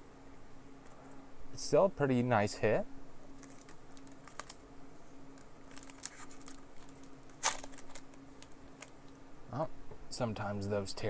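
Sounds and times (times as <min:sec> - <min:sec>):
foil wrapper crinkling: 0:03.3 - 0:04.6, 0:05.3 - 0:09.0
foil wrapper tearing: 0:03.4 - 0:04.6, 0:05.4 - 0:08.9.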